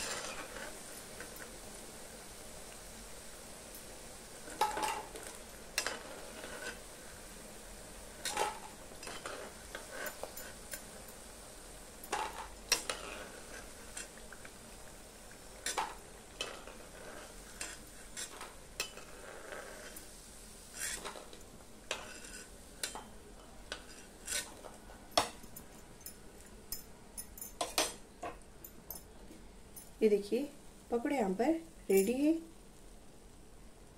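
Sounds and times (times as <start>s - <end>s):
metal ladle scraping pan: 0.0s - 0.8s, 4.4s - 6.8s, 8.2s - 10.6s, 12.1s - 14.2s, 15.6s - 20.1s, 20.7s - 23.1s, 23.7s - 24.8s
food sizzling in hot oil: 0.0s - 28.2s.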